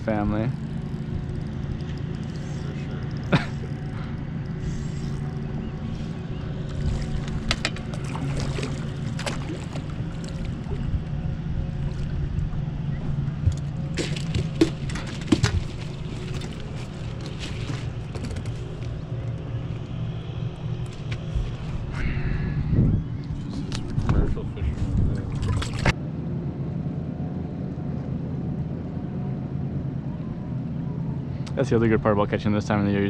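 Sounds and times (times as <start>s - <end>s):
boat motor humming: 0.0s - 33.0s
knocks and rattles: 13.4s - 18.9s.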